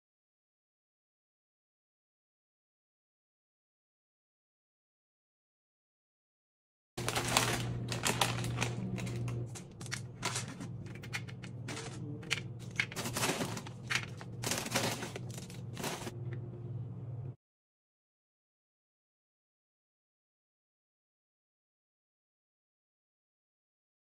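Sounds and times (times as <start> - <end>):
low steady hum: 7.0 - 17.4.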